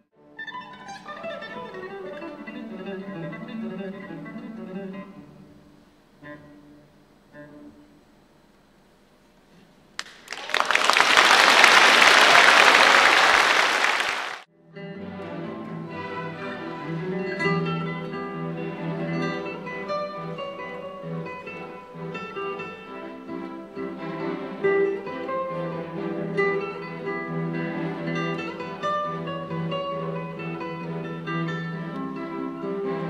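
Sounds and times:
classical guitar: 0.0 - 9.8, 14.5 - 33.0
string orchestra playing: 0.4 - 5.5, 14.8 - 33.0
audience applause: 10.0 - 14.5.

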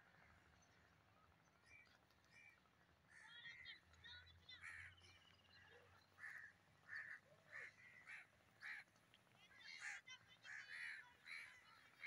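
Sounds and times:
crows cawing: 6.2 - 8.8.

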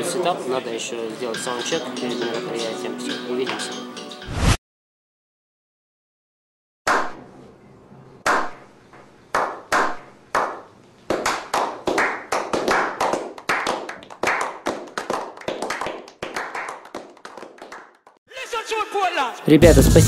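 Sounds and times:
people clapping: 9.4 - 18.2.

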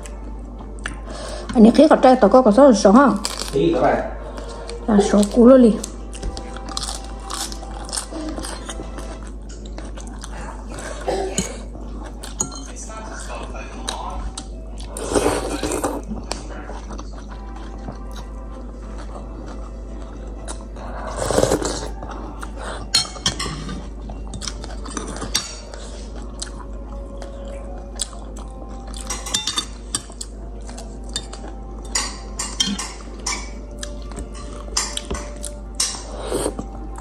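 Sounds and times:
chewing: 4.3 - 37.0
person slurping noodles: 15.0 - 16.1, 21.1 - 21.9
utensils clicking against bowl: 31.1 - 33.6.

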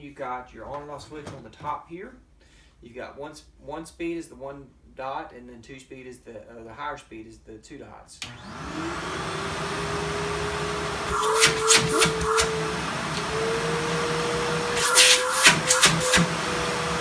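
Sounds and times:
vacuum cleaner motor whine: 8.2 - 17.0.

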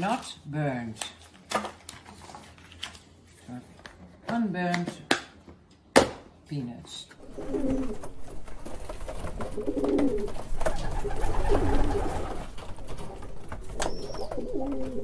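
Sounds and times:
pigeons cooing: 7.2 - 8.4, 9.1 - 12.5, 13.2 - 15.0.

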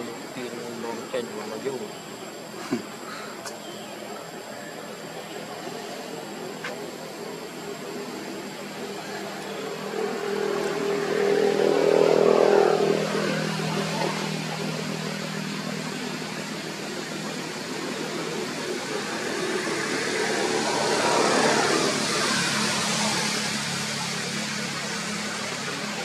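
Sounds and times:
vehicles passing by: 0.0 - 26.0
vehicle engine running: 5.8 - 26.0.

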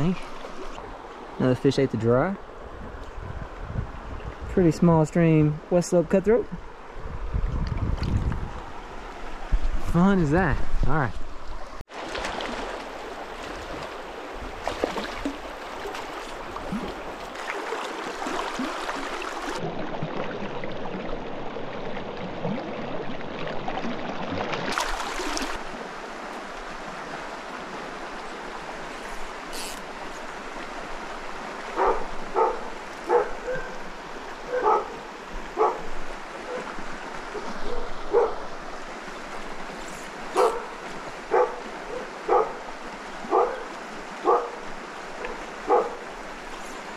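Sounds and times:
stream flowing over rocks: 0.0 - 3.0, 4.6 - 10.6, 11.2 - 46.9
dog barking: 31.8 - 33.8, 34.5 - 35.0, 35.6 - 35.9, 36.5 - 36.7, 37.4 - 38.4, 40.4 - 42.6, 43.3 - 44.6, 45.2 - 46.0.

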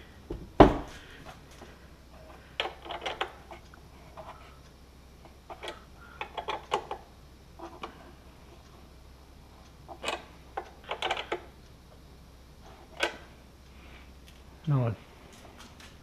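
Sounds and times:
small clicks and rattles: 2.2 - 4.4, 9.9 - 11.6.

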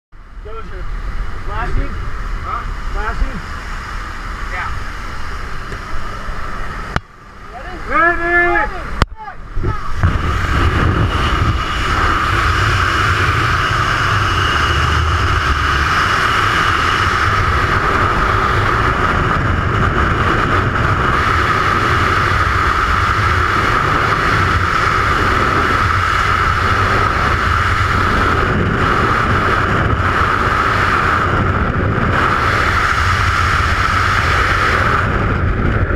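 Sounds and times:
wind roaring over microphone: 0.2 - 35.9.

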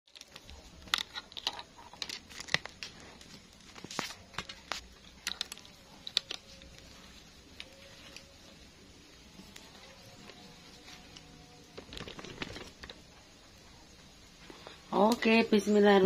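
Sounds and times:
crinkling rustles: 0.1 - 13.4
faint steady background: 0.1 - 16.0.

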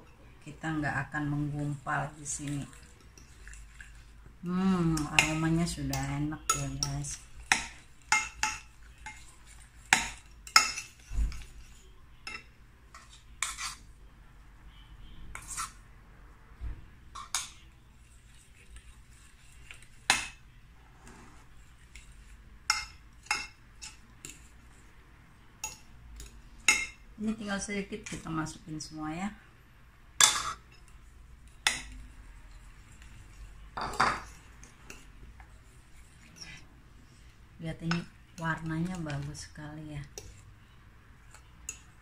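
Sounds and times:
stirring thick batter: 0.0 - 14.0, 15.0 - 15.8, 17.2 - 26.9, 30.5 - 42.0.

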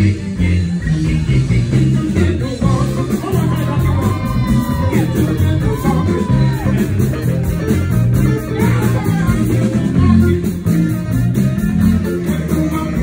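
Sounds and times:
electric bass guitar line: 0.0 - 13.0
live blues band playing: 0.0 - 13.0.

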